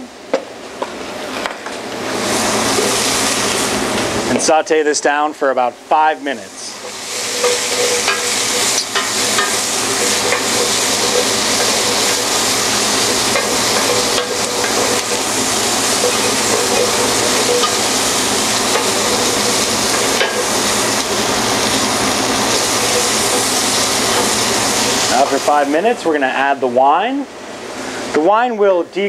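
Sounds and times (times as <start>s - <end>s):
vegetables sizzling in a pan: 2.0s - 4.2s, 6.4s - 25.9s.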